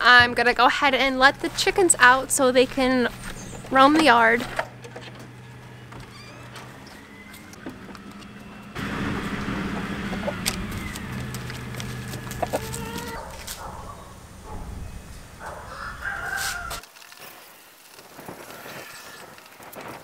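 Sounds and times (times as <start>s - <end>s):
chickens calling: 1.5s - 16.8s.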